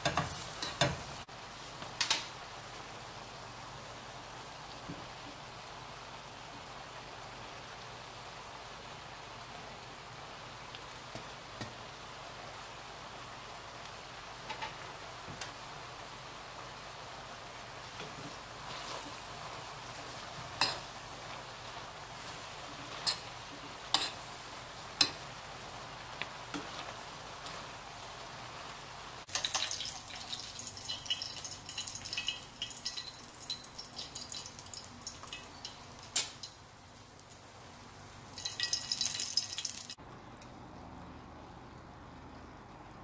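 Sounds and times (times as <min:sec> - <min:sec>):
utensils knocking against pan: 0:00.0 - 0:01.0
stir-fry sizzling in a pan: 0:00.0 - 0:40.0.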